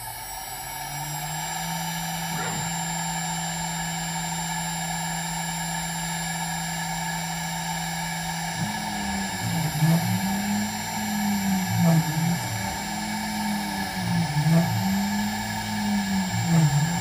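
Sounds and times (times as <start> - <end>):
router spindle hum and whine: 0.0 - 17.0
machine tones gliding: 8.5 - 17.0.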